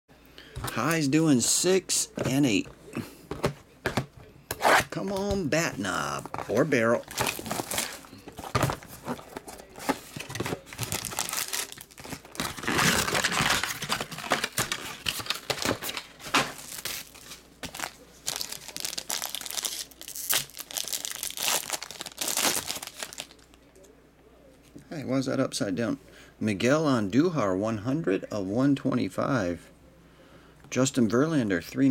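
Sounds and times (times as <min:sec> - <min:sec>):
foil wrapper crinkling and tearing: 0:06.4 - 0:23.6.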